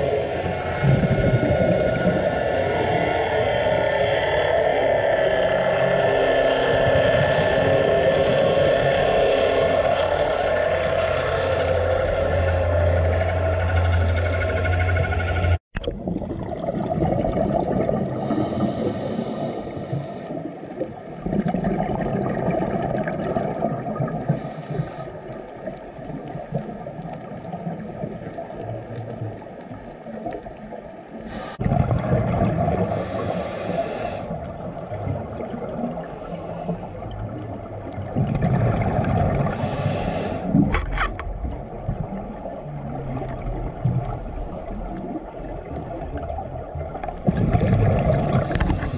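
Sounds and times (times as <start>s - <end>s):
exhaled bubbles gurgling: 0.0s - 13.6s, 15.8s - 48.9s
low drone: 0.0s - 15.6s
scuba regulator inhalation hiss: 18.2s - 20.4s, 24.2s - 25.2s, 31.3s - 31.6s, 32.8s - 34.3s, 39.4s - 40.6s.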